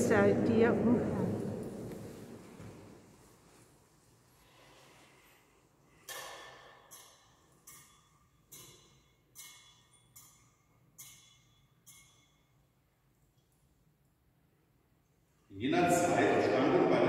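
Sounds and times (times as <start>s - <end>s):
thurible chains clinking: 6.1s - 13.9s.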